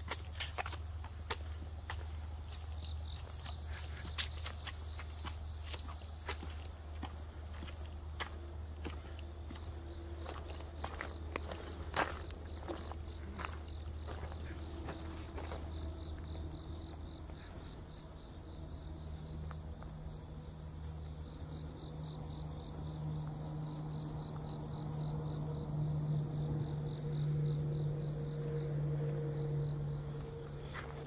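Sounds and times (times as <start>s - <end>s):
insects chirping: 0.0s - 31.0s.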